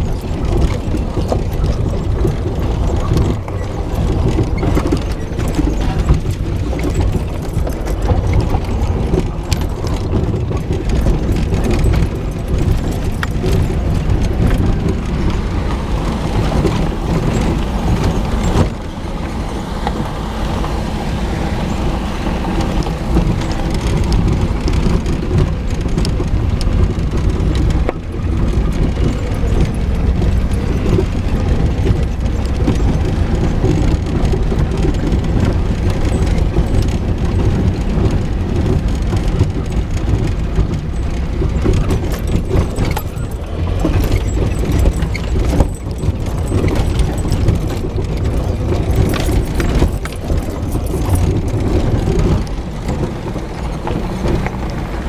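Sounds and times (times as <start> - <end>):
engine running at low speed: 0.0 - 55.0
knocks and rattles: 0.0 - 55.0
tyres on gravel: 0.0 - 55.0.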